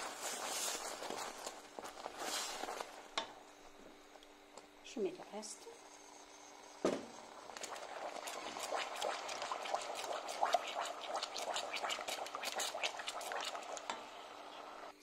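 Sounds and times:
wooden spoon stirring: 0.0s - 3.8s, 7.6s - 14.0s
caramel sauce bubbling and popping: 7.1s - 15.0s.

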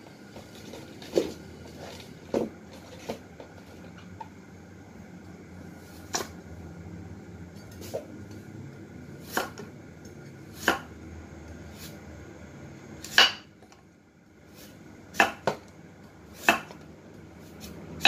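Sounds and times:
steady low hum: 0.0s - 18.0s
knife striking chopping board: 10.6s - 10.9s, 13.1s - 13.5s, 16.4s - 16.8s.

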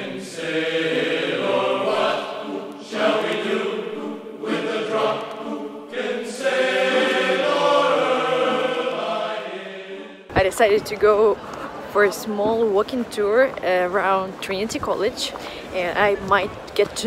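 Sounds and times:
choir-like chanting: 0.0s - 10.3s.

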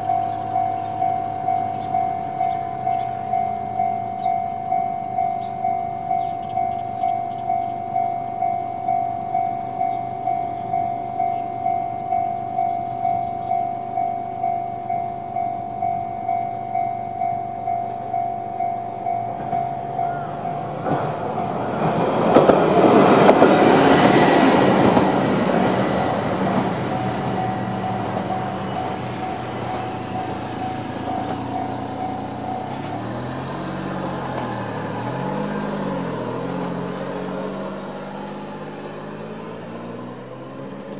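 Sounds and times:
level crossing warning bell: 0.0s - 40.8s
diesel railcar rumbling: 0.0s - 40.9s
train wheel clicks: 20.8s - 35.8s
small truck engine revving: 32.8s - 40.9s.

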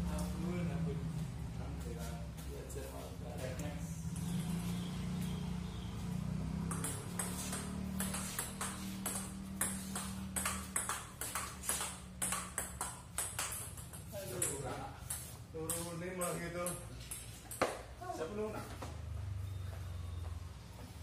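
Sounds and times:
ping-pong ball clicking: 6.6s - 17.9s.

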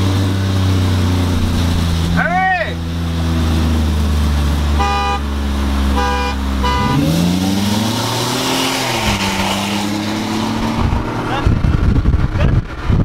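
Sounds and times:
truck engine droning and revving: 0.0s - 13.0s
horn toots: 4.7s - 7.4s.

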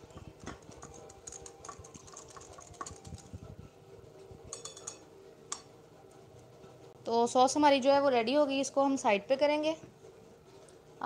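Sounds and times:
whisk tapping against glass bowl: 0.4s - 3.2s.

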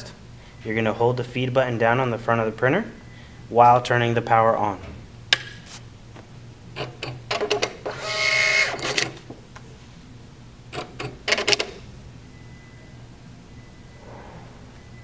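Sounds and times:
paper-feed motor whirring: 7.9s - 9.1s.

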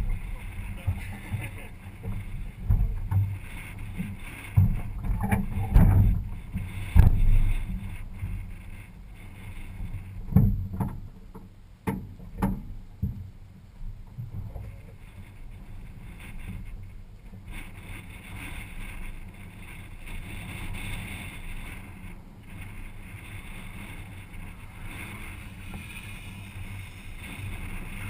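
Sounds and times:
wind noise on microphone: 0.0s - 28.0s
hiss: 19.8s - 28.0s.

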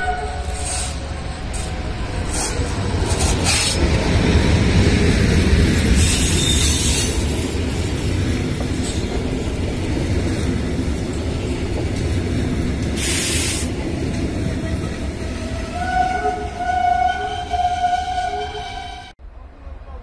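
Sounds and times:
passenger train rumbling past: 0.0s - 20.0s.

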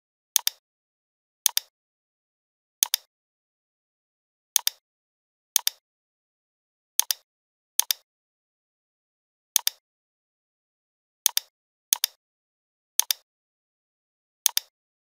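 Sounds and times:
computer mouse clicks: 0.4s - 0.6s, 1.5s - 1.7s, 2.8s - 3.1s, 4.6s - 4.8s, 5.6s - 5.8s, 7.0s - 7.2s, 7.8s - 8.0s, 9.6s - 9.8s, 11.3s - 12.2s, 13.0s - 13.3s, 14.4s - 14.7s.

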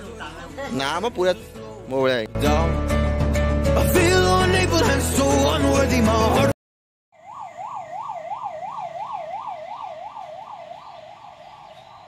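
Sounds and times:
music: 0.0s - 6.6s
ambulance siren yelping: 7.2s - 12.0s.

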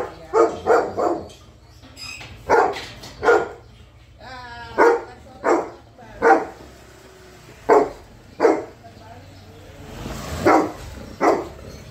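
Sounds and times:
dog barking: 0.0s - 1.4s, 2.4s - 3.6s, 4.7s - 6.7s, 7.6s - 8.8s, 10.4s - 11.6s.

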